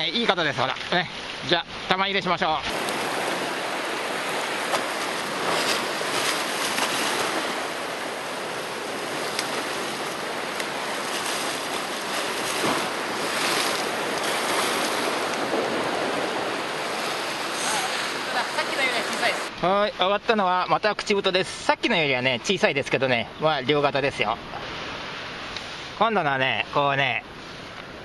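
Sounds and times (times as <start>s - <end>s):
surf washing against rocks: 0.0s - 19.6s.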